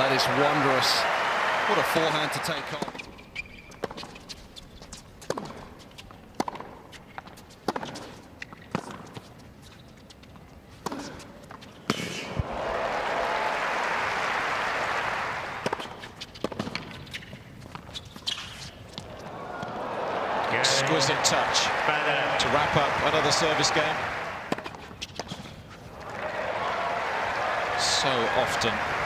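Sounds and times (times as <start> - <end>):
crowd applause: 0.0 - 2.8, 12.4 - 15.7, 19.3 - 24.6, 26.0 - 29.0
tennis racket hitting ball: 5.2 - 5.7, 6.3 - 6.8, 7.7 - 8.1, 15.6 - 17.3, 24.4 - 25.5.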